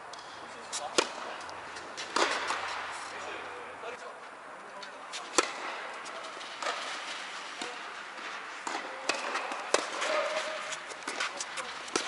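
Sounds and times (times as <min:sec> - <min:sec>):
tennis ball bouncing: 0:00.1 - 0:02.9, 0:05.3 - 0:12.0
tennis balls struck by rackets: 0:00.1 - 0:03.2, 0:05.1 - 0:12.0.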